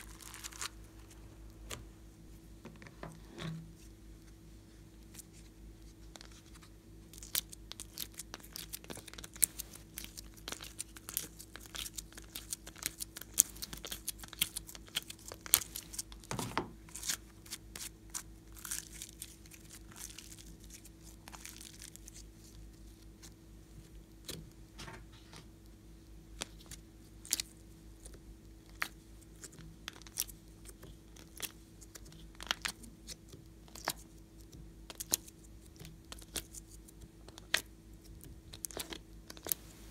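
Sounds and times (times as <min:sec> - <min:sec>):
faint hum: 0:00.0 - 0:39.9
slime sticky clicks and crackles: 0:26.4 - 0:39.6.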